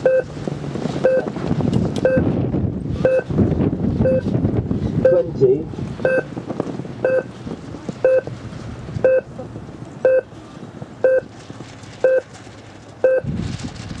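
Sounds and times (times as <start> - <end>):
timer short beeps: 0.0 - 0.3, 2.0 - 2.3, 3.0 - 3.3, 4.0 - 4.3, 6.0 - 6.3, 7.0 - 7.3, 8.0 - 8.3, 10.1 - 10.3, 11.0 - 11.2
light wind noise: 0.0 - 14.0.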